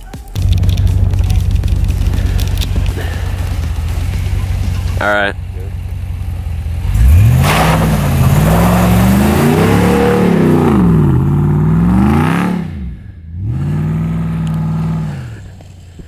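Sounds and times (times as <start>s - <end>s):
tyres spinning on snow: 0.4s - 11.6s
truck engine revving hard: 6.6s - 15.5s.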